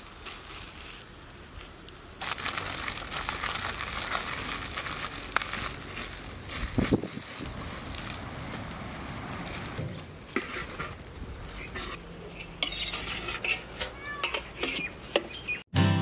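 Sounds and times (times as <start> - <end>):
aluminium foil crinkling: 2.2 - 9.8.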